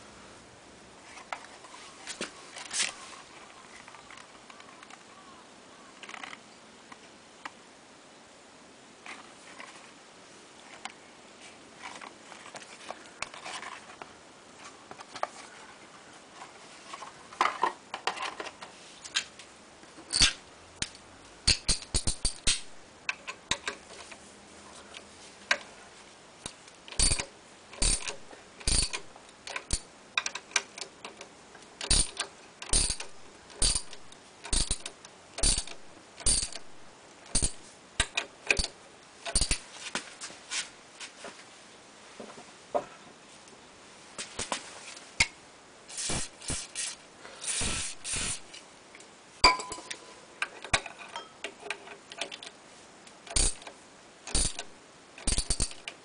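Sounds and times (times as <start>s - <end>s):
ratchet wrench clicking: 20.1s - 22.7s, 26.9s - 30.9s, 31.8s - 38.7s, 39.3s - 39.6s, 53.3s - 53.7s, 54.3s - 55.9s.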